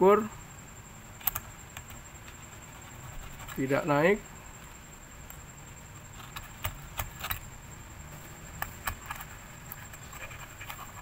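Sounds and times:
probe tips clicking on circuit board: 1.2s - 2.4s.

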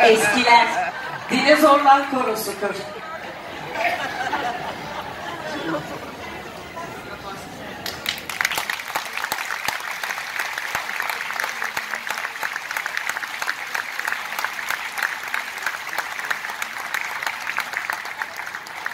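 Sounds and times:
audience applauding: 7.8s - 18.9s.

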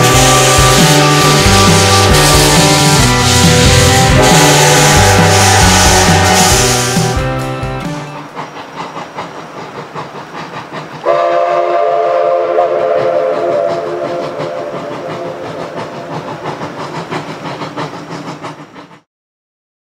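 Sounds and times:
steam whistle blast: 0.0s - 7.2s, 11.1s - 15.5s
steam locomotive exhaust chuffs: 0.0s - 19.1s.

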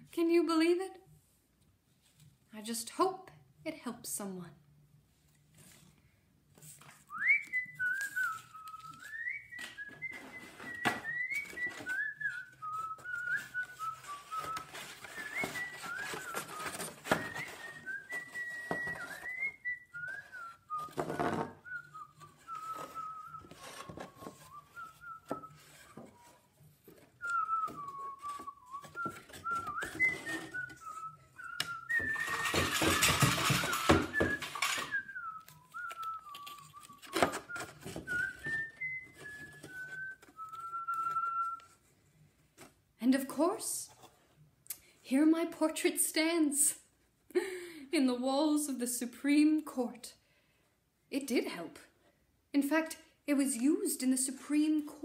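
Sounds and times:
paper and card rustling: 6.6s - 41.8s
person whistling a tune: 7.1s - 41.8s.

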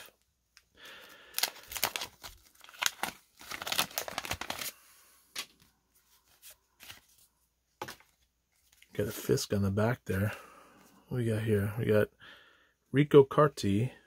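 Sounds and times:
wax paper wrapper tearing: 1.2s - 4.8s.

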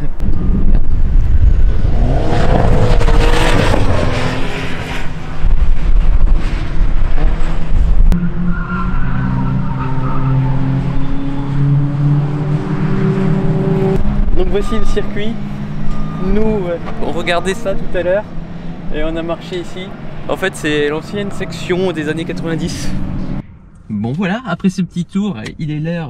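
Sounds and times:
race car engines: 0.0s - 23.7s
wavering squeal: 8.2s - 12.2s, 14.4s - 18.0s.

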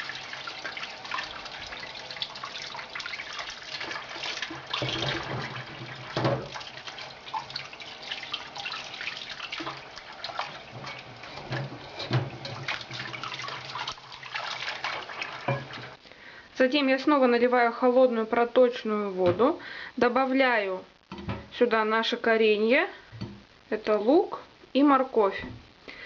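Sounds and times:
tap running into water: 0.0s - 16.0s
water splashing: 0.0s - 16.0s
knocks in sink: 4.5s - 6.6s.

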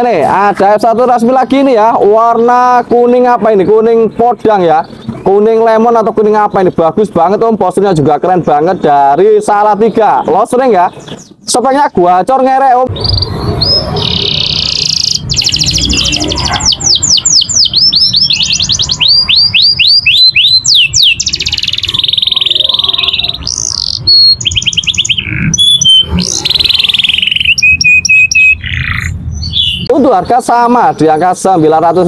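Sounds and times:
canary singing trills: 12.9s - 31.6s.

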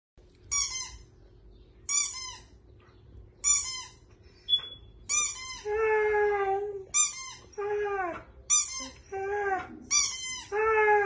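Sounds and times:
squeaky dog toy squeezed: 0.5s - 1.1s, 1.9s - 2.6s, 3.4s - 5.7s, 6.9s - 7.6s, 8.5s - 9.0s, 9.9s - 10.5s.

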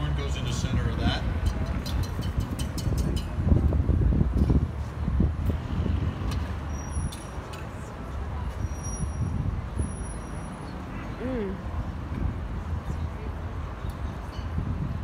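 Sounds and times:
distant traffic rumble: 0.0s - 15.0s
faint voices: 10.5s - 11.9s.

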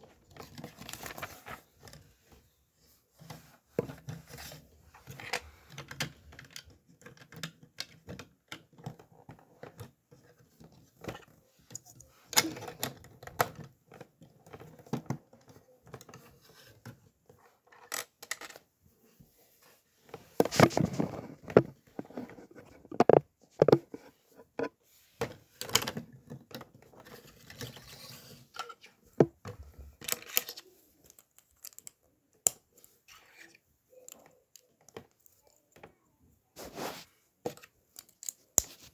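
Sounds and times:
rummaging through pieces: 20.1s - 24.1s
lego pieces clicking and clattering: 30.0s - 32.6s.

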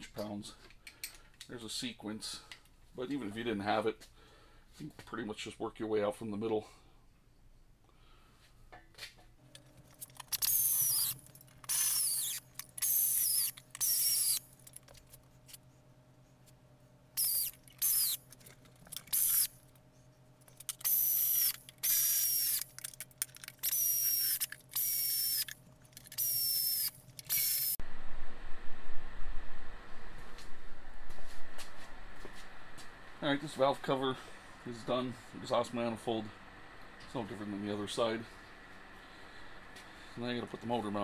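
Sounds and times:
air ratchet whining: 10.0s - 14.8s, 17.2s - 19.6s, 20.6s - 27.8s.

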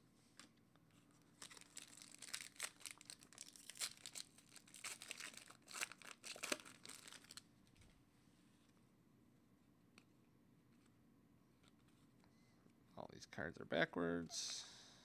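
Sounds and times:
foil wrapper tearing and crinkling: 1.3s - 7.4s.

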